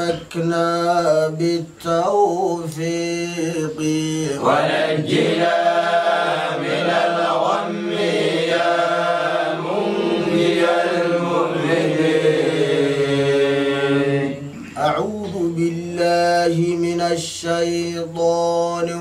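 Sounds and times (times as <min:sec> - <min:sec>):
men chanting: 0:00.0 - 0:19.0.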